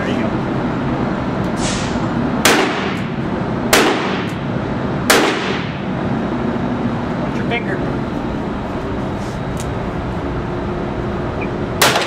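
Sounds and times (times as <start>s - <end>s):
handgun shots echoing: 2.5s - 3.1s, 3.8s - 4.4s, 5.1s - 5.7s, 11.8s - 12.0s.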